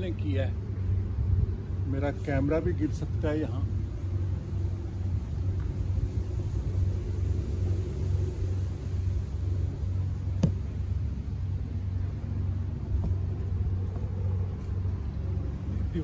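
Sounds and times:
microphone handling rumble: 9.5 - 16.0.

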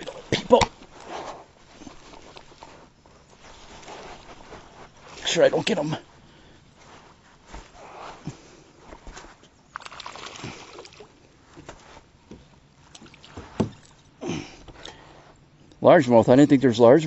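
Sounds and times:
water splashing: 9.7 - 11.1.

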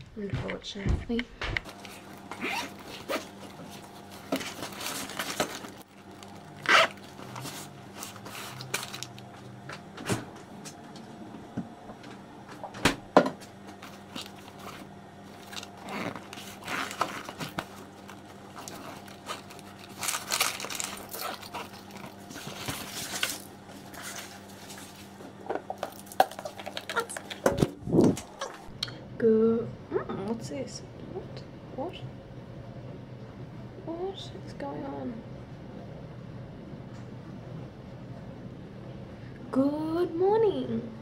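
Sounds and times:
faint steady hum: 0.0 - 41.0
backpack rustling and scraping: 1.7 - 9.0, 13.8 - 25.2.

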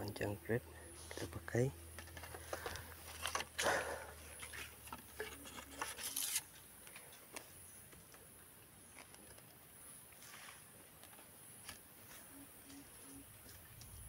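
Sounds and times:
brushing through leafy branches: 10.2 - 10.9.

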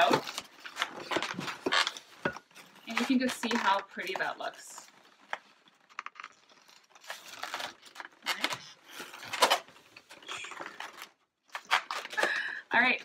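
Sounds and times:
balloons rubbing and squeaking: 0.0 - 3.3, 8.2 - 10.9.

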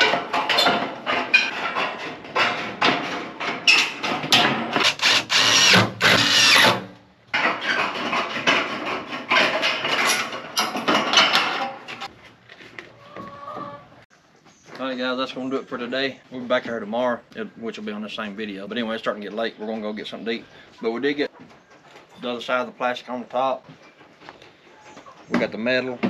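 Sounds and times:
metal sheet rattling: 0.0 - 12.1
drill driving screws into metal: 4.8 - 6.8.

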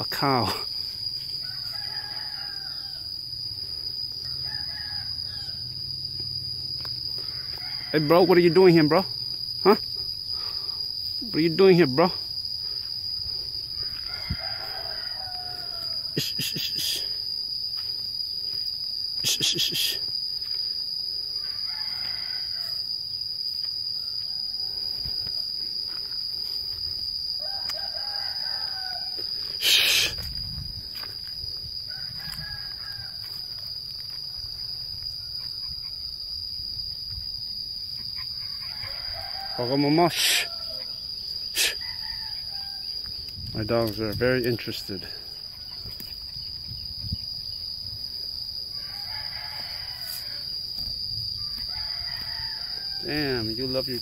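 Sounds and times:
high insect drone: 0.0 - 54.0
rooster crowing: 1.1 - 9.0, 13.2 - 17.1, 20.8 - 26.0, 27.2 - 30.2, 30.9 - 36.4, 38.0 - 43.7, 44.9 - 46.5, 48.5 - 54.0.

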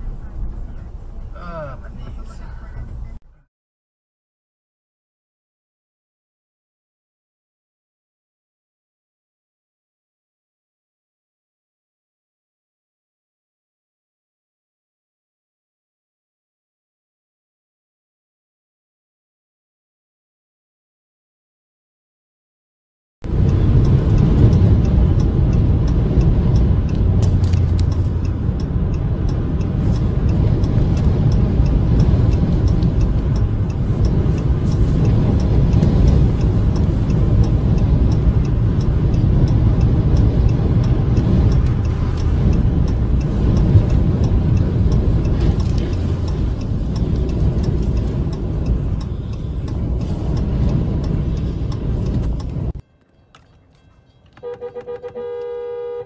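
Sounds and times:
wind and road noise: 0.0 - 3.5, 23.2 - 56.0
faint ticking: 23.3 - 52.8.

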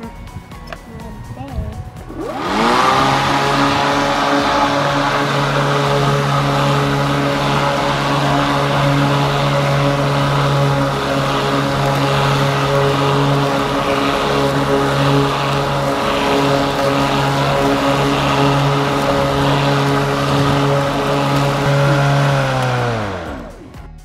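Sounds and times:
electric push mower running: 1.8 - 23.9
mower motor winding down: 1.9 - 23.9.

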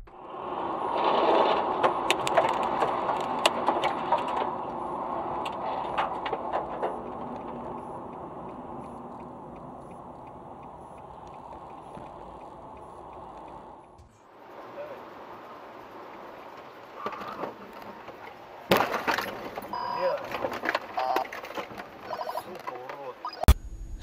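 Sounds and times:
car road and engine noise: 0.0 - 24.0
sharp cracks and clicks: 0.9 - 14.0
faint regular ticking: 1.8 - 18.6.

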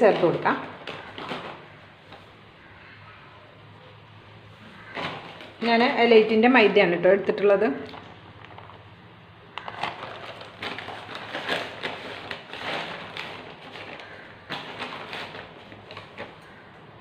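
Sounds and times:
plastic packet crinkling: 0.0 - 2.3, 7.8 - 16.8.

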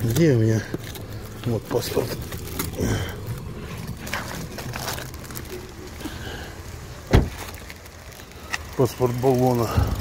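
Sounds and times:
paper rustling: 0.0 - 6.2
dull thump: 7.1 - 7.4.

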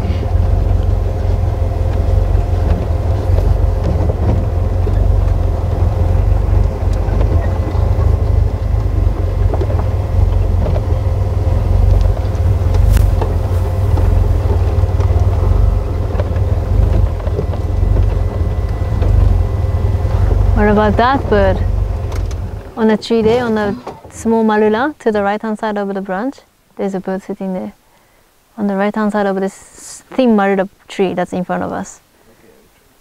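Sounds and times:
vehicle engine rumbling: 0.0 - 25.9
constant hum: 0.0 - 33.0.

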